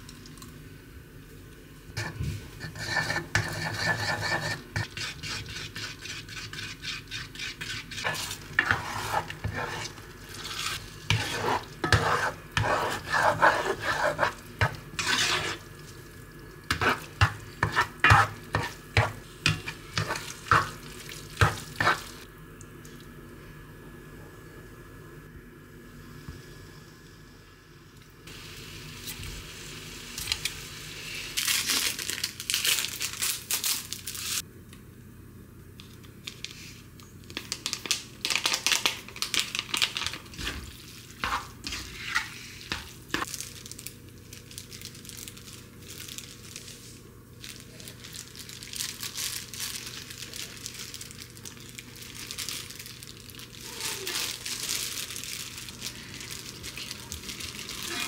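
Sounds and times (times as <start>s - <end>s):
plastic crinkling and rustling: 31.4s - 34.4s, 36.2s - 41.2s, 43.2s - 58.0s.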